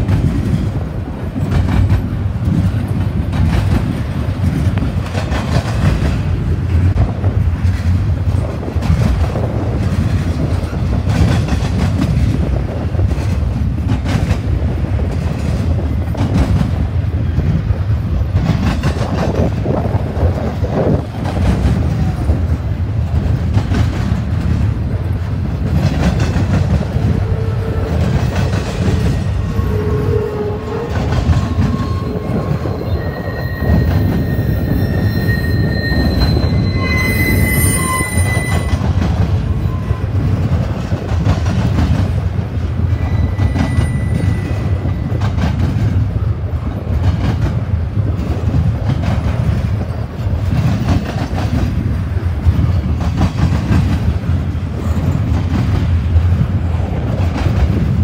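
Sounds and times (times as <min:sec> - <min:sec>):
wheels clicking over rail joints: 0:00.0 - 0:33.0
freight train rumble: 0:00.0 - 0:58.0
faint high wheel squeal: 0:29.5 - 0:38.8, 0:42.9 - 0:45.2.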